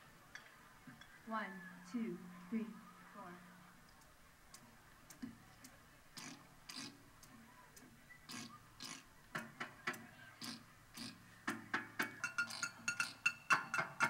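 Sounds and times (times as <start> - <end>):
sharp wooden clicks: 3.8 - 14.0.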